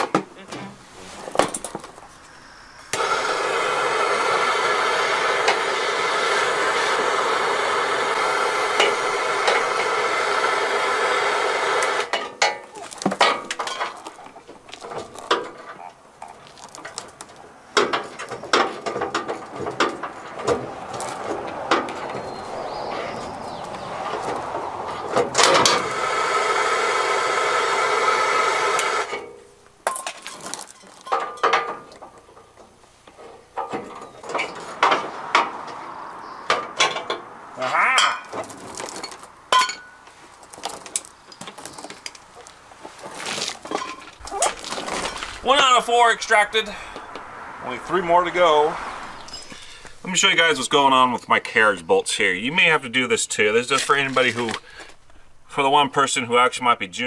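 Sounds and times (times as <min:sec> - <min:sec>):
steady whirr: 0:02.5 - 0:12.1, 0:19.1 - 0:29.3
hand tools clinking on metal: 0:12.0 - 0:21.9, 0:29.0 - 0:35.0, 0:37.9 - 0:42.5, 0:43.1 - 0:47.0.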